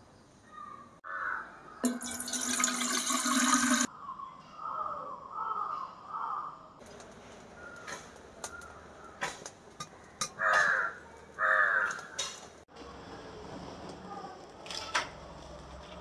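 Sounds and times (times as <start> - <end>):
crows cawing: 1.0 - 1.8, 4.6 - 6.7, 10.0 - 12.4.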